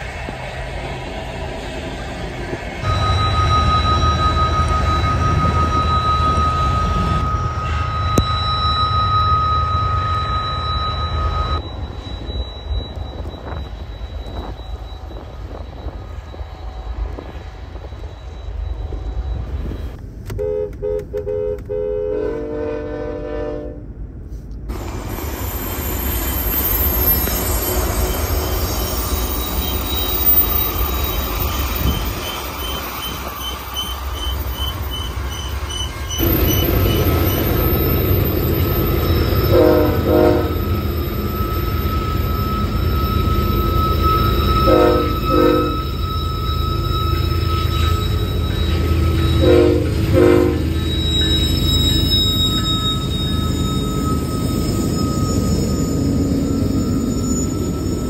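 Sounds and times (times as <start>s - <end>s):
high wheel squeal: 0.0s - 20.2s, 24.7s - 58.0s
steady high ringing tone: 0.0s - 20.2s, 25.0s - 58.0s
train wheels on rails: 0.0s - 58.0s
train horn: 2.8s - 8.6s, 20.3s - 24.0s, 39.3s - 40.8s, 43.6s - 53.0s
short horn blasts: 20.3s - 23.8s, 39.5s - 40.6s, 44.6s - 45.9s, 49.4s - 50.7s.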